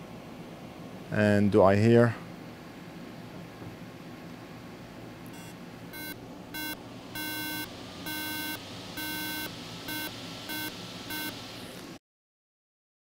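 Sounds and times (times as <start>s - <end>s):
laptop startup beeps: 5.4s - 11.4s.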